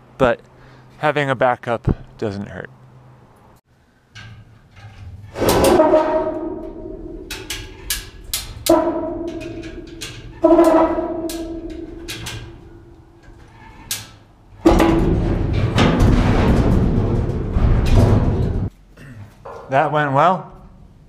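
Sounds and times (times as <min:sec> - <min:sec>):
heavy metal clanks of mast: 0:04.1 - 0:18.7
loud strikes on steel hull: 0:05.4 - 0:12.9, 0:14.6 - 0:18.7
metallic ringing: 0:05.5 - 0:15.8.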